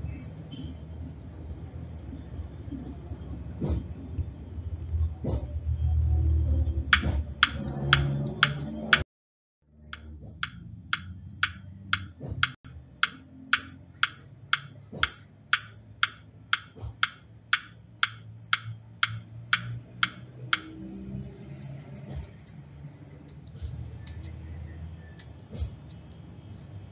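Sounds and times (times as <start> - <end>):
steady ticking: 6.9 - 9.1, 9.8 - 20.8.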